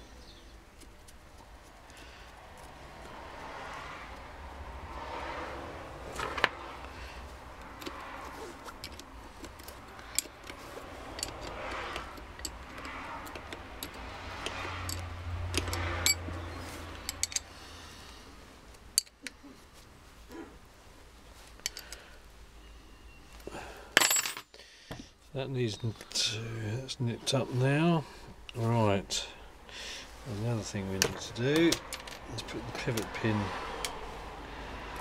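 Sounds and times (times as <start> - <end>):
small metal clicks and clinks: 8.8 - 16.2, 17.0 - 17.5
spanner on terminal nut: 8.8 - 16.3, 17.0 - 17.5.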